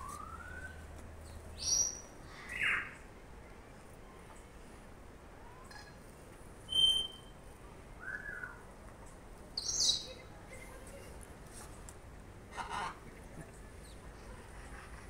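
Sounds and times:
short steady whistle: 6.7 - 7.4.

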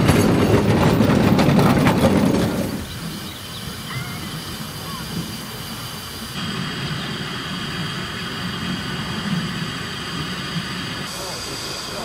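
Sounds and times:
steam locomotive rumbling: 0.0 - 12.0.

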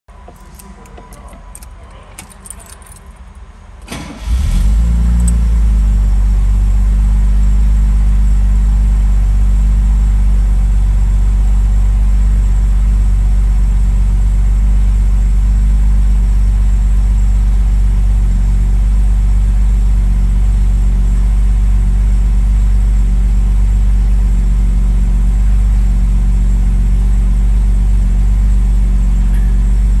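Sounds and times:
car engine starting and idling: 0.1 - 30.0
keys jangling: 0.3 - 3.4, 5.2 - 5.4.

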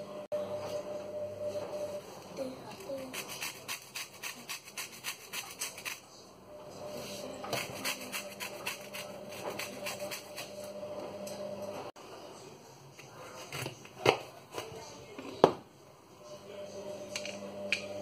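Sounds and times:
lemon rind scraped on grater: 2.8 - 6.1, 7.2 - 10.7.

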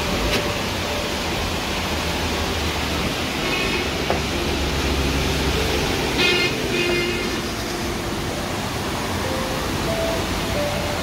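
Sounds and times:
stream rushing: 0.0 - 11.0.

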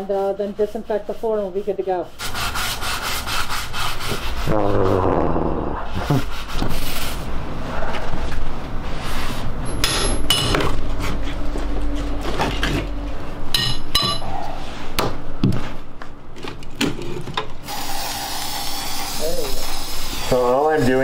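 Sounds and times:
ringing metal clanks: 13.5 - 14.3
aerosol spray can hissing: 17.7 - 20.3.

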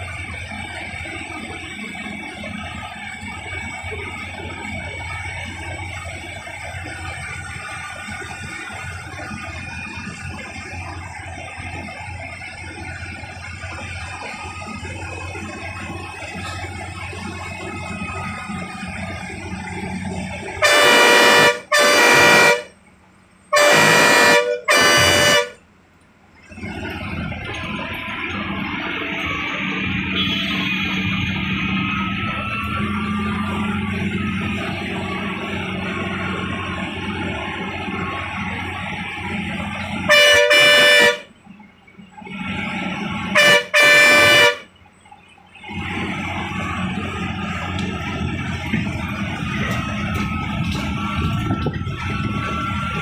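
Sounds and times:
bus cabin rumble: 0.0 - 53.0
bus horn blasts: 19.9 - 22.8, 23.5 - 25.7, 29.9 - 31.4, 39.7 - 41.4, 42.4 - 44.8.

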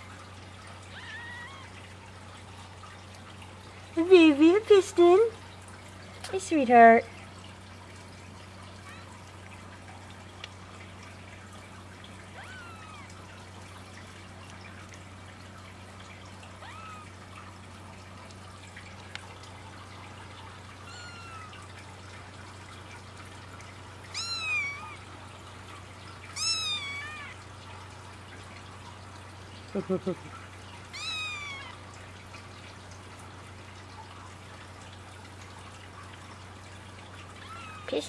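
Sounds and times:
low hum and hiss: 0.0 - 38.0
kittens mewing: 0.9 - 1.8, 12.3 - 13.2, 16.6 - 17.1, 20.8 - 21.7, 24.1 - 25.0, 26.4 - 27.4, 30.9 - 31.8, 37.4 - 38.0.

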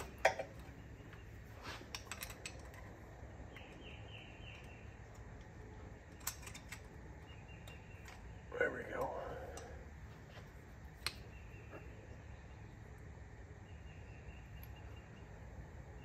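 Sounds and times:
metal tool clicking and scraping: 6.1 - 6.9.

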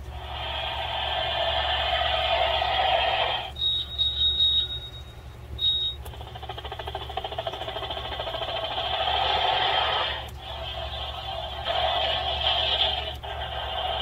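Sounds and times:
high electronic beeping: 3.3 - 8.6
electronic buzzing pulsing sound: 5.6 - 14.0.

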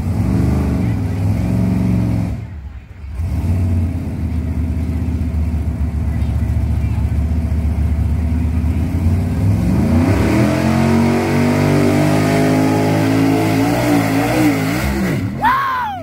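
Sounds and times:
truck engine revving hard: 0.0 - 2.5, 3.1 - 5.1, 8.7 - 15.9.

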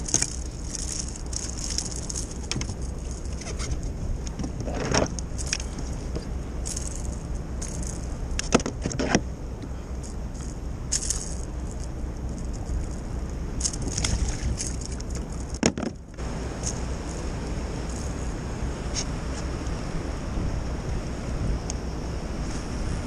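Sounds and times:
gear clicking and rattling: 0.0 - 19.1
wind rumble: 0.0 - 23.0
water rushing against kayak hull: 13.1 - 18.8.

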